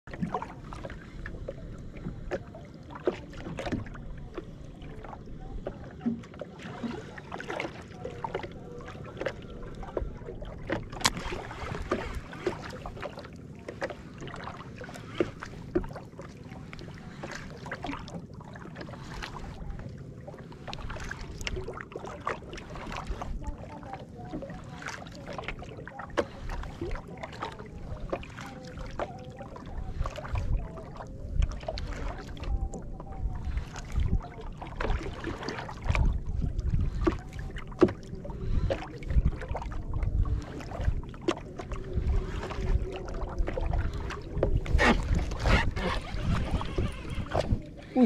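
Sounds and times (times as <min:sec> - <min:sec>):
waves lapping against kayak hull: 0:00.0 - 0:48.0
low wind rumble: 0:29.4 - 0:48.0.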